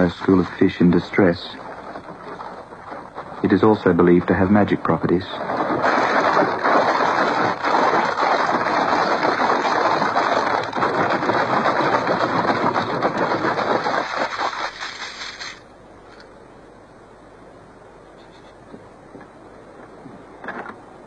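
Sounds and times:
coconut shell rattle clattering: 5.2s - 15.6s.

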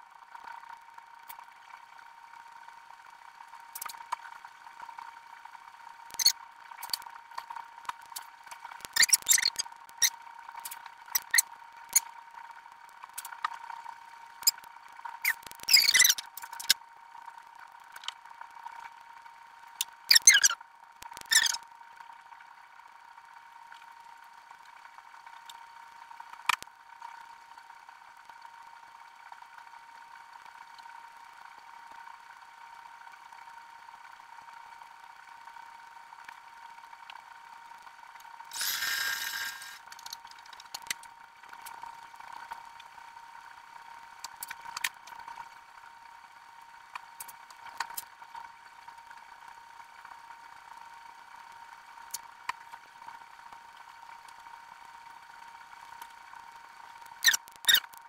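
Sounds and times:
faint steady hum: 0.0s - 58.0s
steam iron hiss: 38.5s - 39.8s.

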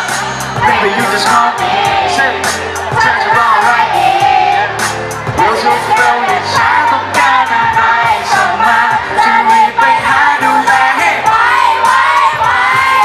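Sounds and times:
pop backing track with beat: 0.0s - 13.0s
man singing into a microphone: 0.6s - 2.4s, 5.4s - 11.3s.

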